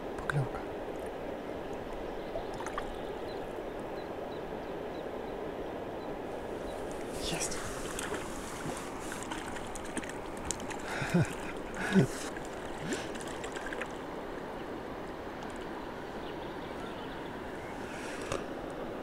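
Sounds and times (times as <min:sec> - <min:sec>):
steady outdoor hiss: 0:00.0 - 0:19.0
fish splashing at water surface: 0:07.8 - 0:14.0.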